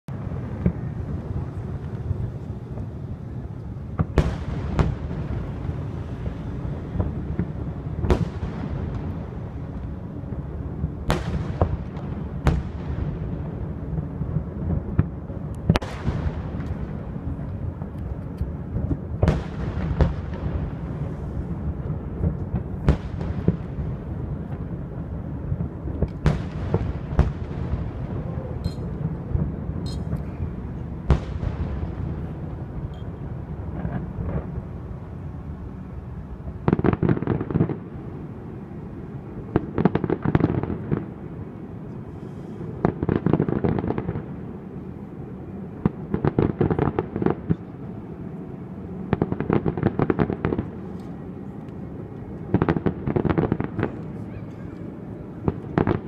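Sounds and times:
constant low rumble: 0:00.1 - 0:56.0
distant firework bangs echoing: 0:03.9 - 0:09.7, 0:10.3 - 0:18.0, 0:18.7 - 0:34.8.

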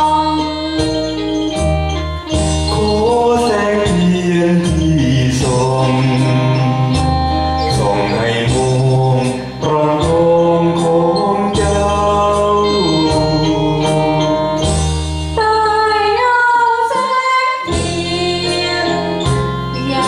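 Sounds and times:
karaoke backing track: 0:00.0 - 0:20.0
man and woman singing: 0:02.7 - 0:14.8, 0:16.1 - 0:20.0.

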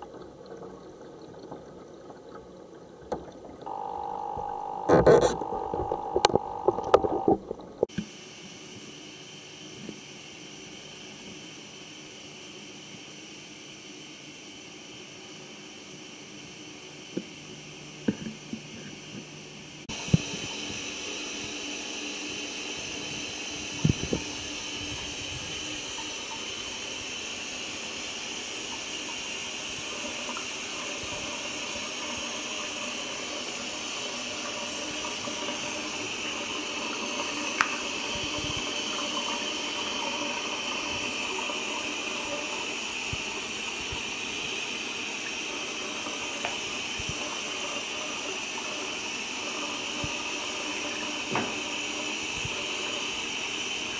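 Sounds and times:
bathtub tap running: 0:37.0 - 0:40.2, 0:51.2 - 0:52.0.

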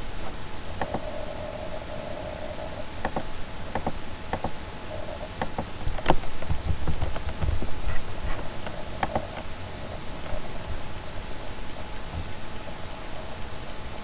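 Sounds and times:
faint steady hum: 0:00.0 - 0:14.0
keyboard and mouse clicking: 0:00.8 - 0:01.1, 0:03.0 - 0:04.5, 0:08.6 - 0:09.4.

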